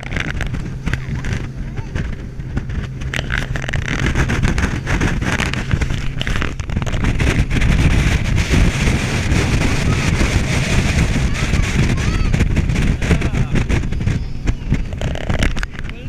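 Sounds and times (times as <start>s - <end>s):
boat engine: 0.0s - 16.0s
water rushing: 0.0s - 16.0s
wind buffeting microphone: 0.0s - 16.0s.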